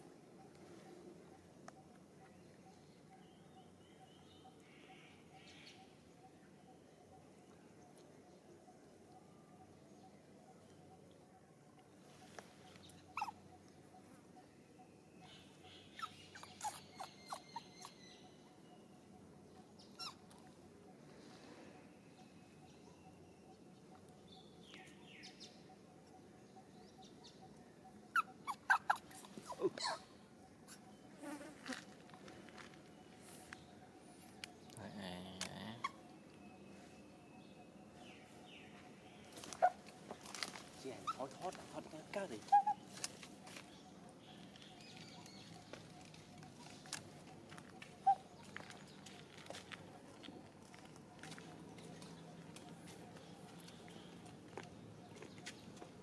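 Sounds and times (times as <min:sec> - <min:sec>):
monkey squeaking: 0:13.1 - 0:13.4, 0:16.0 - 0:18.0, 0:20.0 - 0:20.3, 0:28.1 - 0:30.1, 0:41.0 - 0:41.5, 0:42.4 - 0:43.0.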